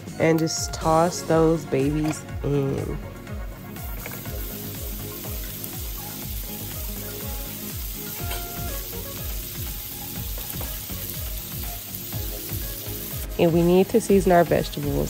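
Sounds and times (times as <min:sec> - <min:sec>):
background music with low beat: 0:00.0 - 0:15.0
vegetables sizzling in a frying pan: 0:03.7 - 0:15.0.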